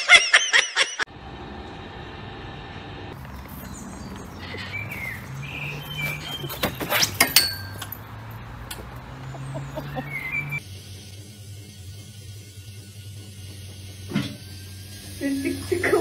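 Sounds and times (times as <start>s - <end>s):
birds chirping: 3.2s - 10.6s
metal swing seat clanking: 3.2s - 10.6s.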